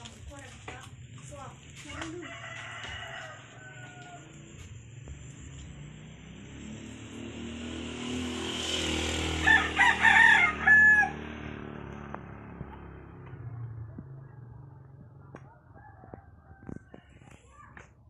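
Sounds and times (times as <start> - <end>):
rooster crowing: 2.0 - 4.6, 9.4 - 11.4, 15.4 - 17.2
low rumble: 11.3 - 17.0.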